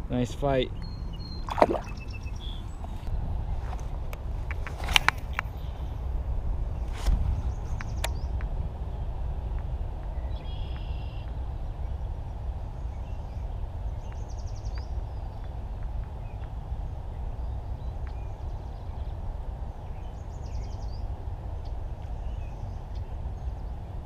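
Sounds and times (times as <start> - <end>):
low outdoor rumble: 0.0 - 24.0
songbird trilling: 0.7 - 2.8.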